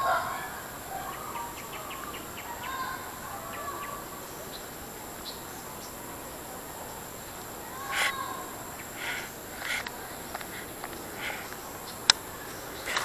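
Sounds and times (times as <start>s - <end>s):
birds chirping and calling: 0.0s - 6.0s, 7.7s - 13.0s
insects droning: 0.0s - 13.0s
quick run of ticks: 8.8s - 13.0s.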